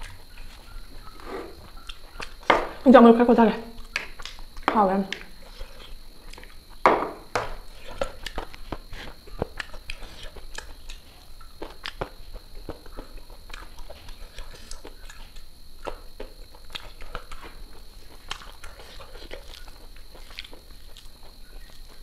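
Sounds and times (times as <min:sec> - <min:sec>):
wet chewing smacks: 0:03.8 - 0:06.8, 0:07.7 - 0:22.0.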